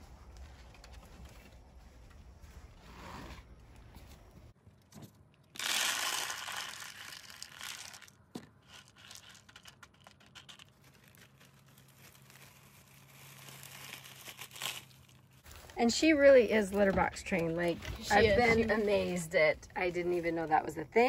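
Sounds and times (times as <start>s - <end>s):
litter pellets pouring into plastic box: 5.6s - 8.1s
pellets clicking under a hand: 5.6s - 11.7s
plastic bag crinkling: 5.6s - 15.8s.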